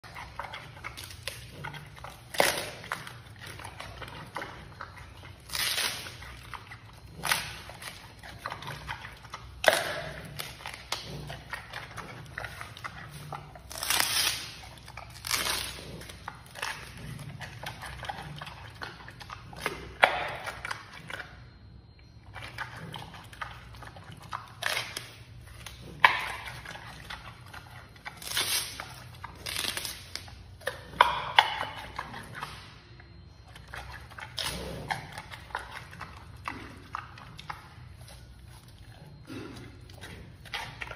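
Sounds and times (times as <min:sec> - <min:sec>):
quiet chewing: 0:00.0 - 0:40.9
bamboo crunching and snapping: 0:00.9 - 0:03.6, 0:05.4 - 0:06.6, 0:09.6 - 0:11.1, 0:12.5 - 0:17.0, 0:24.6 - 0:27.2, 0:28.1 - 0:31.7.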